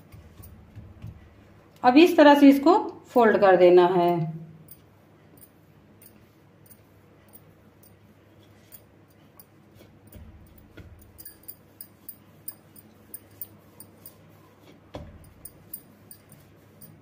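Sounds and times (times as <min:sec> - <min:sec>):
hands rubbing dough: 0:00.0 - 0:01.7, 0:09.6 - 0:17.0.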